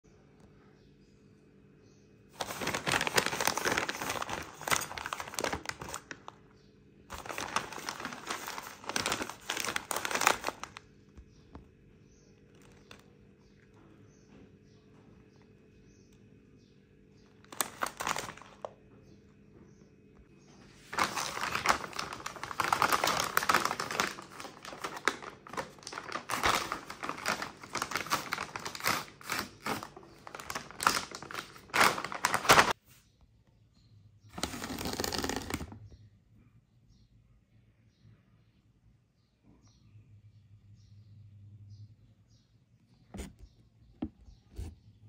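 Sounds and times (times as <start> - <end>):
packaging crinkling and rustling: 2.4 - 6.4, 7.1 - 11.2, 12.4 - 13.1, 17.4 - 18.8, 20.8 - 32.8.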